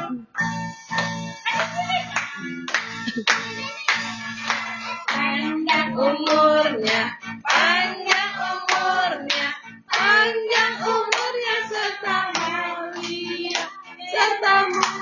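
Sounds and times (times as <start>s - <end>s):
hands clapping: 0.9s - 15.0s
voices singing: 3.1s - 15.0s.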